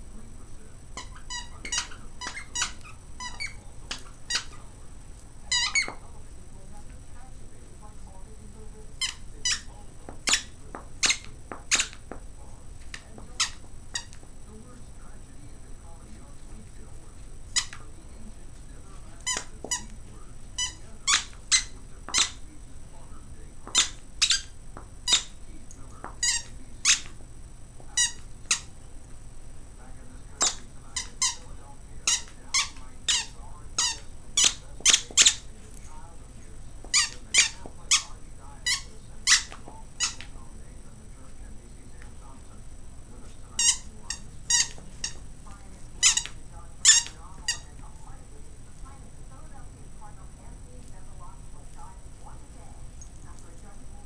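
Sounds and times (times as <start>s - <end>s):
dog toy squeaking: 1.0s - 4.6s, 5.5s - 6.0s, 9.0s - 12.0s, 12.9s - 14.2s, 17.5s - 17.8s, 19.2s - 19.9s, 20.6s - 22.4s, 23.6s - 25.4s, 26.2s - 27.2s, 28.0s - 28.8s, 30.4s - 31.4s, 32.0s - 35.5s, 36.9s - 40.3s, 43.6s - 45.2s, 46.0s - 47.7s.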